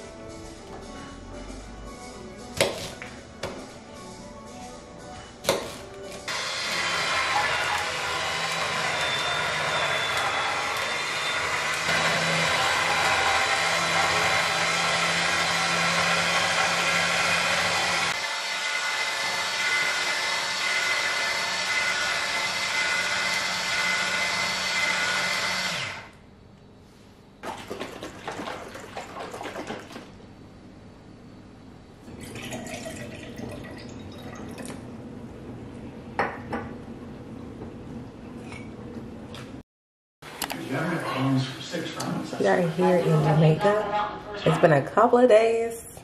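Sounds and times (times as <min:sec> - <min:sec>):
juicer motor humming: 0:06.3 - 0:26.2, 0:32.0 - 0:35.0.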